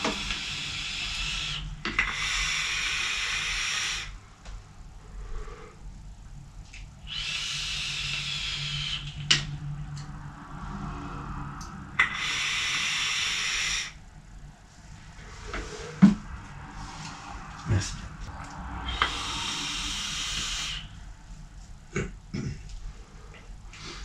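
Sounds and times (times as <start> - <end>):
electronic cigarette airy hiss: 0.0 - 4.2, 7.0 - 9.2, 12.0 - 14.0, 18.8 - 20.9.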